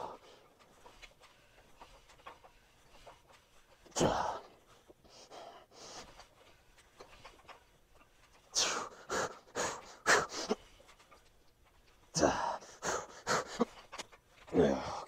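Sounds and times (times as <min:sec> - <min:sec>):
man breathing hard: 0:00.0 - 0:07.4, 0:08.4 - 0:11.1, 0:12.1 - 0:14.0.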